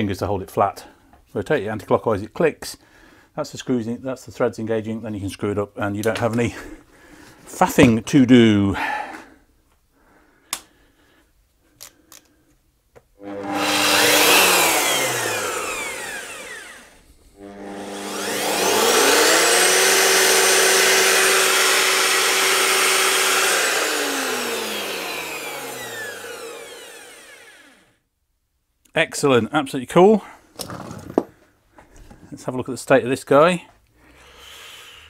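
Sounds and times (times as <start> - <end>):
belt sander motor whining: 13.2 - 27.9.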